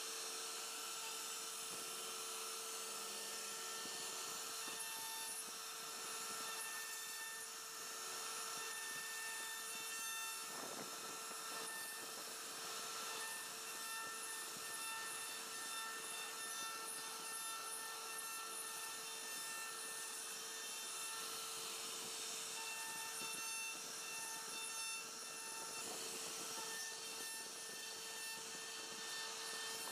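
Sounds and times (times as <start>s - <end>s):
router spindle whine: 0.0s - 29.9s
bit rasping through wood: 3.0s - 29.9s.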